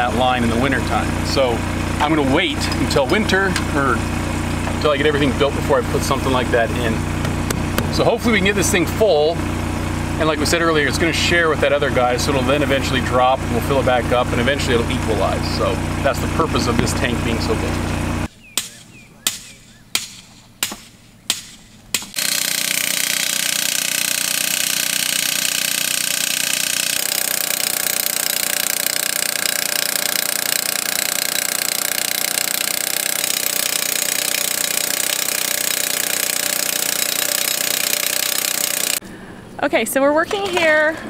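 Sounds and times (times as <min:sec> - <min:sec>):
post driver pounding: 0:07.1 - 0:08.1, 0:18.5 - 0:39.0.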